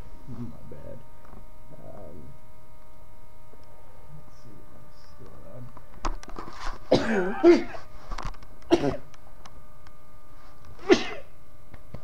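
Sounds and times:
steady electrical hum: 0:00.0 - 0:12.0
person coughing: 0:06.9 - 0:07.8, 0:08.7 - 0:09.1, 0:10.8 - 0:11.3.

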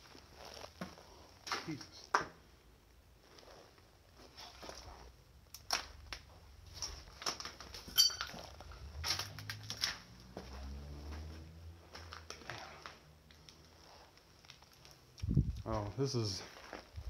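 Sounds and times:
clicks and crackles: 0:05.4 - 0:10.1, 0:12.0 - 0:15.7
metallic clink: 0:07.9 - 0:08.5
footsteps crunching over debris: 0:16.2 - 0:17.0.

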